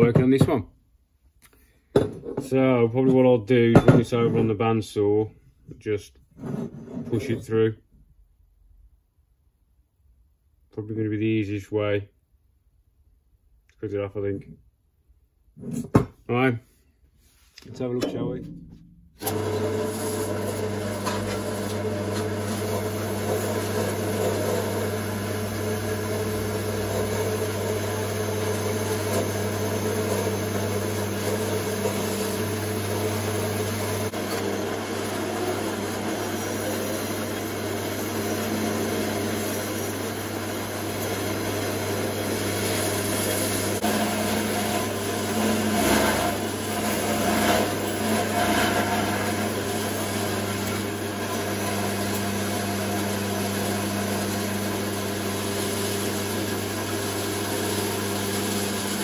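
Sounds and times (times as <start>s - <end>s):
bandsaw humming: 19.2s - 59.0s
saw blade cutting metal: 26.0s - 52.3s.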